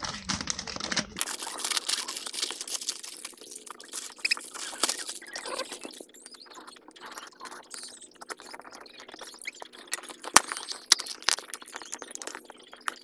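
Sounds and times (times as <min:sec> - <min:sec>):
cardboard and tape tearing: 0:00.0 - 0:06.0.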